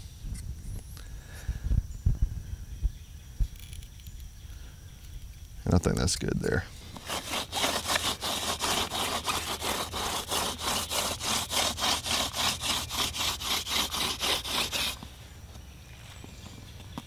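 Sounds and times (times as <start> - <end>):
wooden spindle grinding in fireboard: 7.0 - 15.0.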